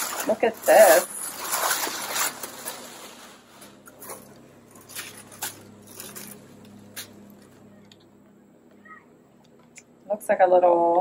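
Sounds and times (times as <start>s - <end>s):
fabric and packaging rustling: 0.0s - 7.9s.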